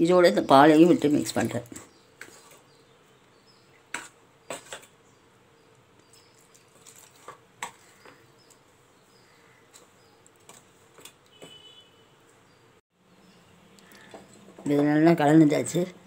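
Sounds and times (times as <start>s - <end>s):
spoon stirring thick mixture: 1.2s - 2.8s, 3.5s - 5.0s.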